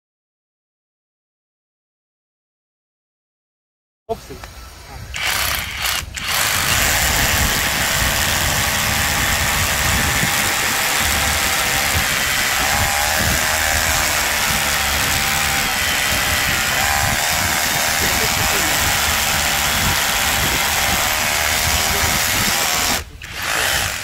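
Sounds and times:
rotary hammer drilling into concrete: 0:05.2 - 0:24.0.

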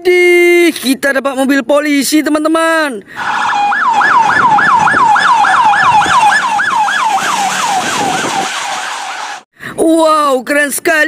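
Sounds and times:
traffic hum: 0:00.9 - 0:09.5
electronic siren yelping: 0:03.2 - 0:09.4.

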